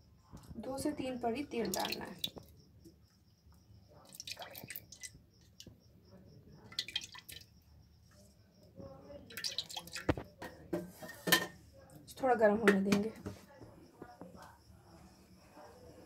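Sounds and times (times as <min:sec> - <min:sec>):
oil pouring and splashing: 0:01.5 - 0:02.5, 0:04.0 - 0:05.8, 0:06.6 - 0:07.6, 0:09.3 - 0:10.3.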